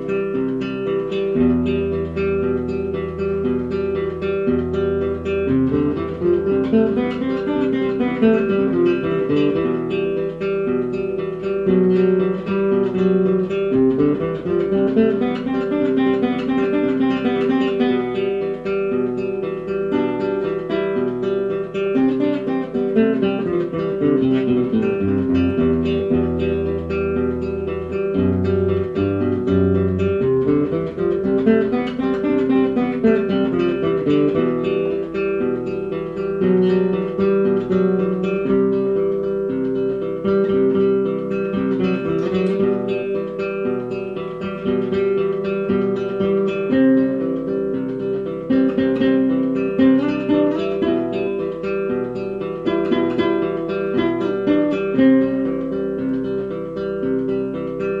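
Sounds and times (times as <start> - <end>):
acoustic guitar strummed and picked: 0.0 - 58.0
looped guitar part: 0.0 - 58.0.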